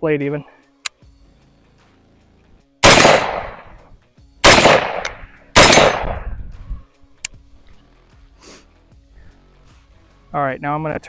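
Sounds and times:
rifle shots: 2.8 - 3.8, 4.4 - 6.3.

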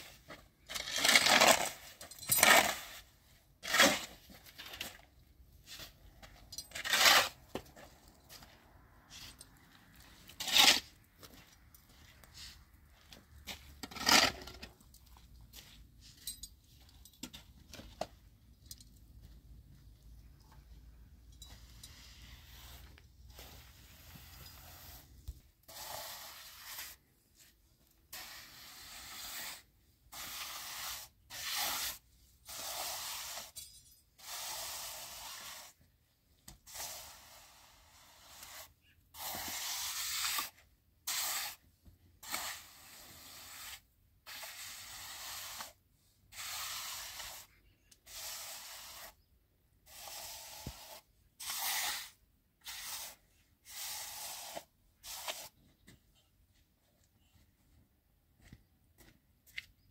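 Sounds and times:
trowel scraping wet cement: 0.0 - 5.0, 6.7 - 8.0, 10.0 - 11.0, 13.7 - 14.8, 21.9 - 27.1, 28.1 - 33.6, 34.2 - 35.8, 36.6 - 49.2, 49.9 - 55.6.

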